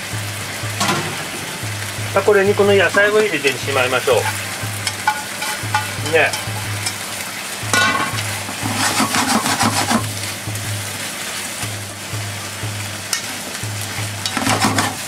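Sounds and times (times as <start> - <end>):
meat sizzling in a frying pan: 0.0 - 15.0
chopsticks clicking on a pan: 4.2 - 7.0, 14.2 - 14.5.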